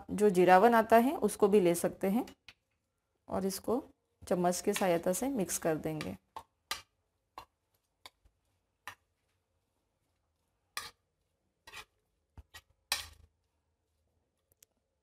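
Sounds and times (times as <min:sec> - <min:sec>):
metal spoon scraping plate: 0:11.6 - 0:13.2.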